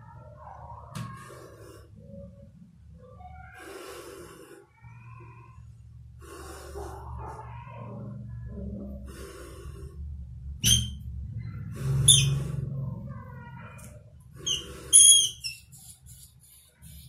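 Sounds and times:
rat squealing: 10.6 - 11.0, 12.0 - 12.6, 14.4 - 16.2
cat hissing: 14.4 - 17.0.

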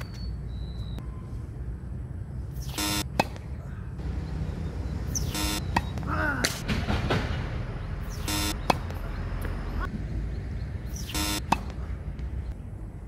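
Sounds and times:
short buzzing tones: 2.6 - 3.1, 5.2 - 5.7, 8.2 - 8.6, 11.1 - 11.4
racket striking tennis ball: 3.1 - 3.5, 5.2 - 7.3, 11.4 - 11.8.

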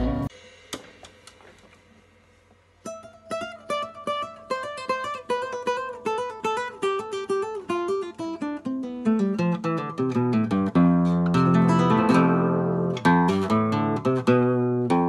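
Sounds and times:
acoustic guitar plucked notes: 2.8 - 15.0.

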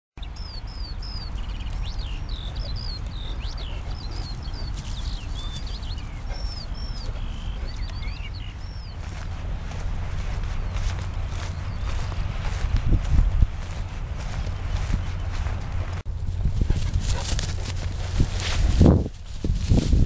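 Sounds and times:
songbirds chirping: 0.2 - 19.7
steady low rumble: 0.2 - 20.0.

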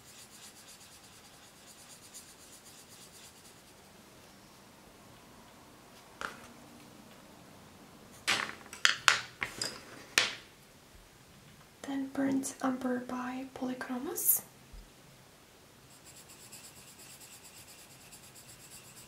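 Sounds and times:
pencil scratching on paper: 0.0 - 3.8, 15.9 - 19.0
wooden pencils clacking: 8.2 - 10.4.

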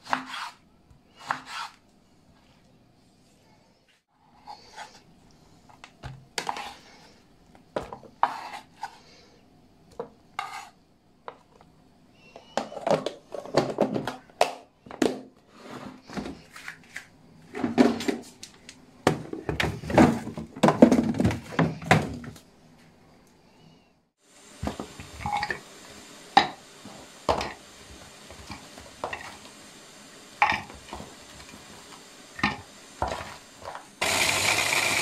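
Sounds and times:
plastic container clattering: 19.1 - 22.4.

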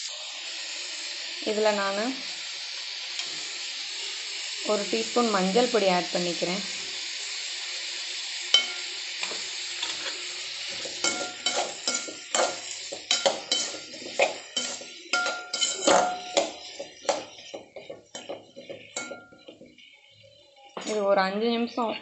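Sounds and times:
vegetables sizzling in oil: 0.0 - 22.0
spatula scraping metal pan: 8.6 - 21.0.

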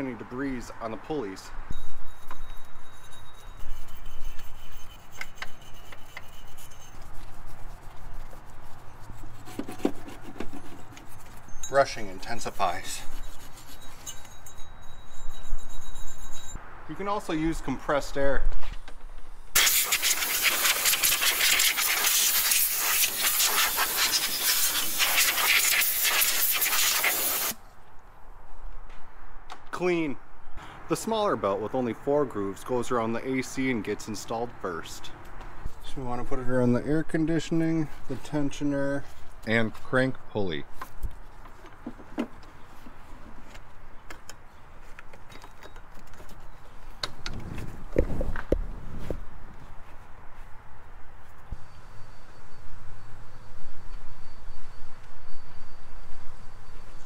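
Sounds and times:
compressed air blowgun hissing: 19.5 - 27.6.

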